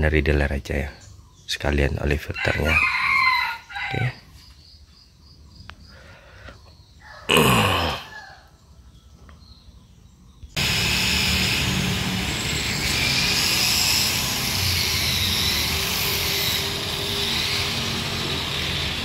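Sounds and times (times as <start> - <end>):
machine noise with hiss and hum: 10.6 - 19.0.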